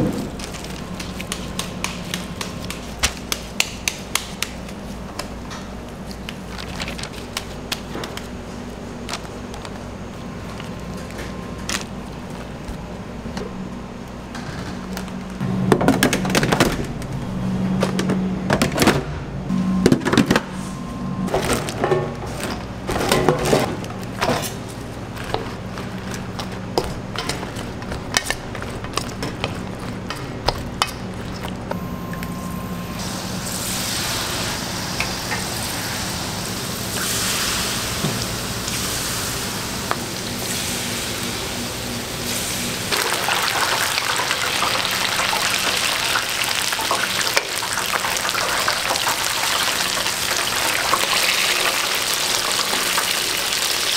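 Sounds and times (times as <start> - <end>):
low hum: 9.8 - 42.6
hot oil sizzling in fryer: 33.0 - 53.9.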